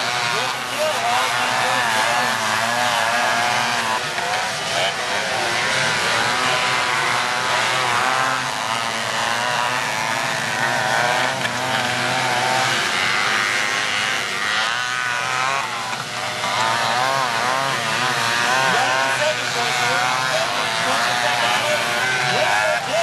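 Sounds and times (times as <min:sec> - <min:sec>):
off-road buggy engines revving: 0:00.0 - 0:23.0.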